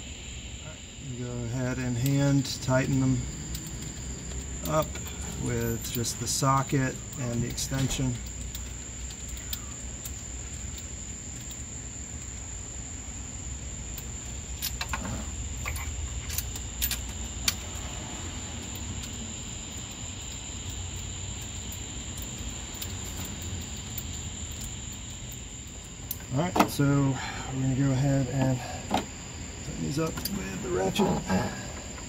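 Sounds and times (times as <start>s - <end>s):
metallic socket clicks: 2.8s - 5.0s, 15.6s - 17.6s.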